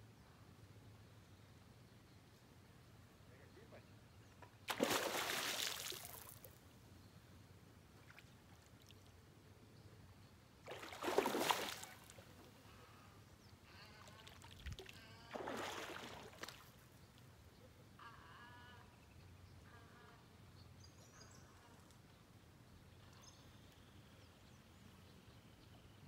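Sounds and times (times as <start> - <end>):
fish thrashing and splashing: 4.7 - 6.3, 10.7 - 12.0.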